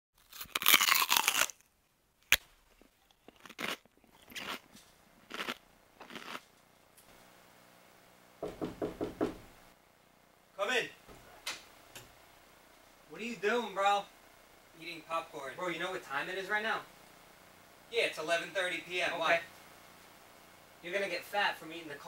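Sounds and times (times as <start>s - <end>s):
chewing crunches: 0.2s - 6.5s
popcorn crunching rustle: 0.2s - 6.6s.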